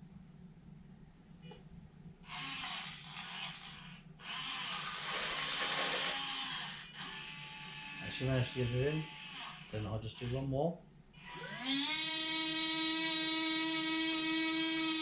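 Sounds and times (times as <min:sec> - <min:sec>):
servos whirring: 0:02.3 - 0:10.5.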